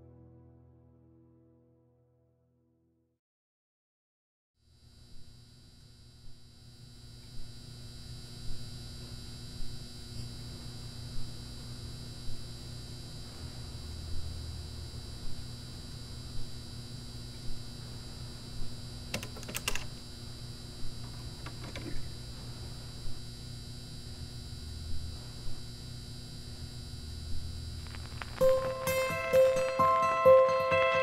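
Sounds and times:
electrical hum: 4.6s - 31.0s.

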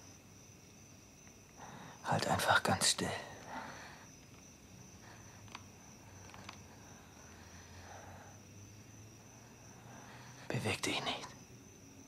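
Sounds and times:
soft breathing: 1.6s - 2.0s, 3.1s - 10.5s
faint ticks: 4.2s - 7.3s.

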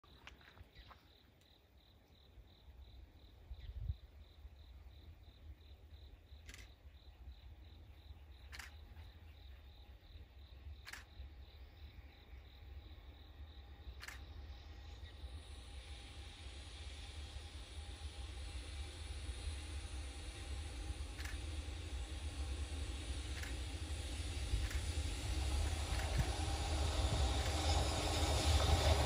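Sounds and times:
insects chirping: 0.0s - 29.0s
low rumble: 13.5s - 29.0s.

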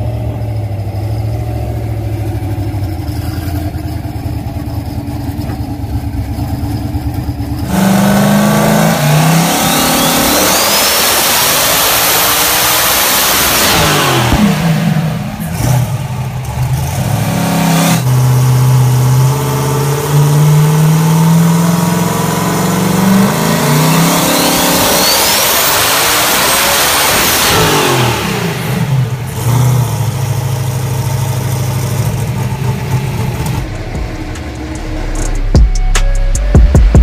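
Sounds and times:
engine idling and revving: 0.0s - 37.0s
high turbo whistle: 7.7s - 11.9s, 23.1s - 26.6s, 33.6s - 37.0s.

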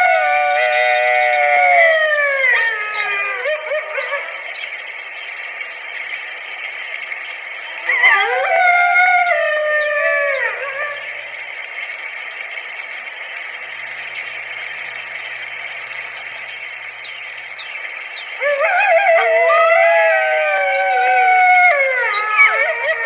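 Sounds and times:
wolf howling: 0.0s - 4.4s, 7.8s - 11.1s, 18.4s - 23.0s
steady hiss: 0.0s - 23.0s.

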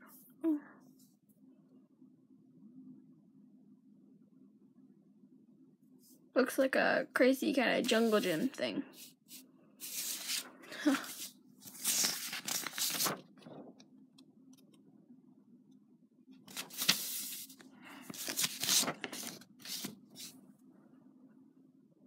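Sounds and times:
paper rustling and sliding: 7.9s - 13.4s, 16.5s - 20.4s.

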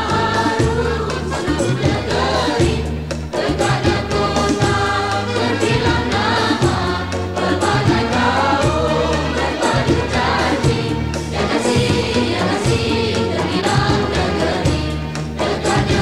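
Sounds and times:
voices singing: 0.0s - 16.0s.

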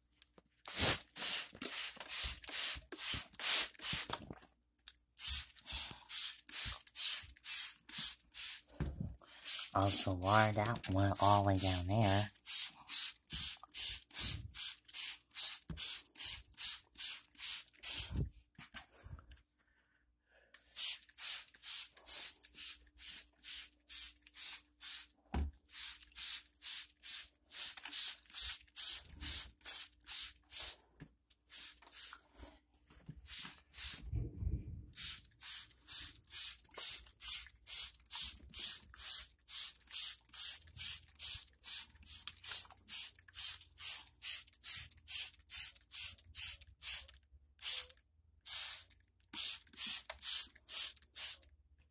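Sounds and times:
spray bottle hissing sprays: 0.7s - 4.2s, 5.2s - 8.7s, 9.4s - 18.2s, 20.6s - 30.8s, 31.5s - 32.2s, 33.2s - 34.1s, 34.9s - 51.4s.

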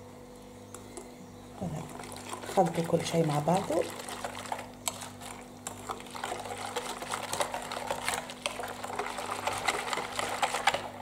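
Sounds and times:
liquid sloshing: 1.6s - 11.0s.

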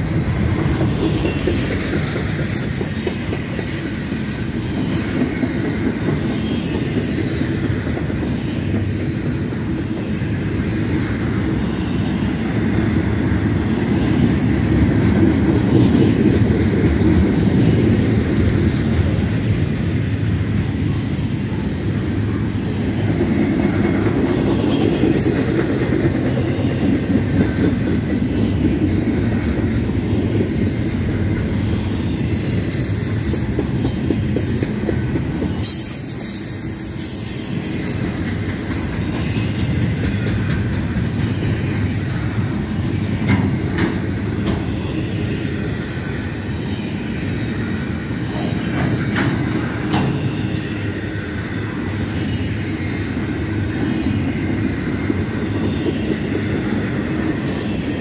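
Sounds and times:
freight train wheels rumbling on rail: 0.0s - 58.0s.

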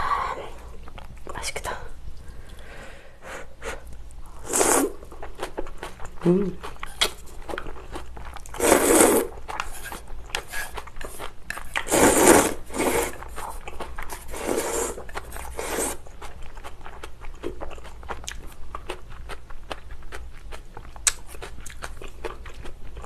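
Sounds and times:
person slurping noodles: 4.4s - 5.0s, 8.5s - 13.6s, 14.2s - 16.0s
chewing with wet mouth clicks: 13.2s - 14.2s, 15.0s - 23.0s.

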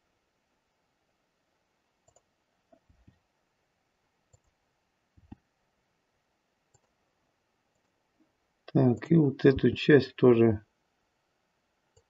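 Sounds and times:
mouse and keyboard clicks: 2.0s - 3.2s.

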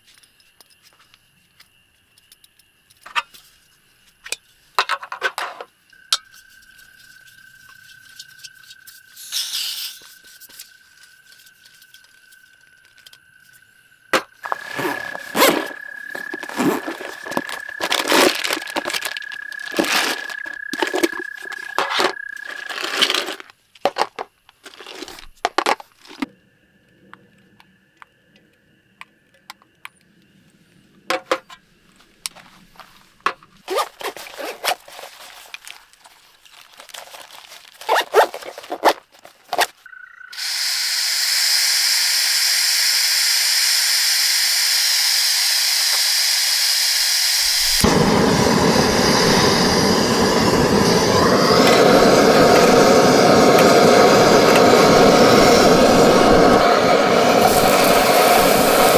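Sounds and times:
stove burner flame roaring: 14.4s - 21.8s, 40.4s - 58.9s
gas hissing from stove valve: 40.4s - 58.9s.

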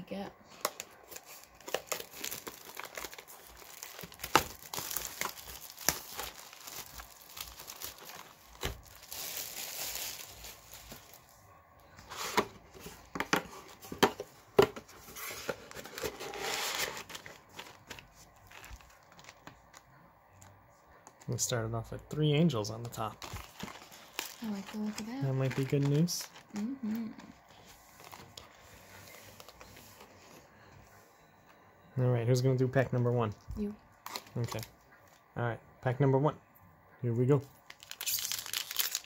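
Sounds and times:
shrink wrap crinkling and tearing: 0.5s - 11.3s, 15.1s - 20.5s, 22.8s - 29.8s, 34.0s - 34.7s, 37.6s - 39.0s.

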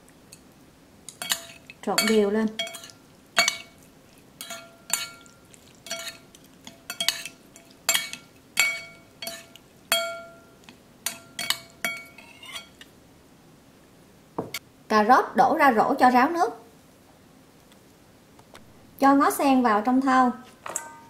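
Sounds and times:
metal spoon clinking ceramic bowl: 1.1s - 12.9s, 20.7s - 21.0s.

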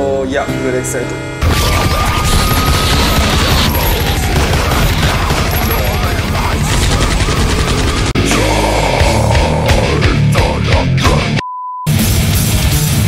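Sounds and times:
high sliding note: 0.0s - 3.8s
heavy metal music: 0.0s - 13.0s
rapid-fire drumming: 1.4s - 11.3s.

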